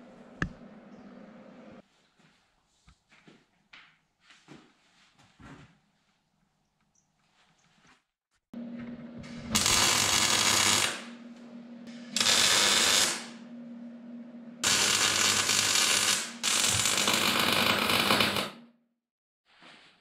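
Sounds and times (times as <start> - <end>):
steady low hum: 0.0 - 1.8, 8.6 - 17.2
welding arc buzzing: 9.2 - 13.5, 14.6 - 18.6.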